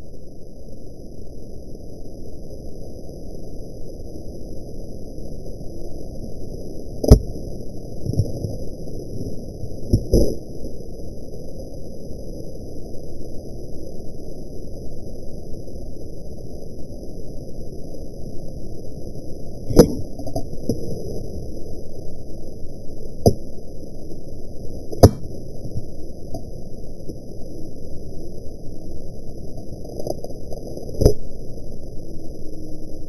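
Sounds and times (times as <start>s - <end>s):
low dull rumble: 6.4s - 11.4s, 19.3s - 33.0s.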